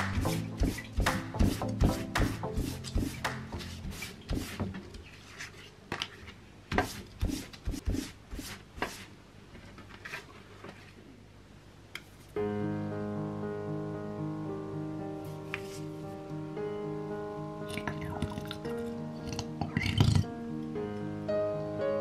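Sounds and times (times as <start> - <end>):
piano background music: 0.0 - 4.6, 12.4 - 22.0
cloth rubbing a leaf: 0.2 - 5.8, 15.4 - 16.1.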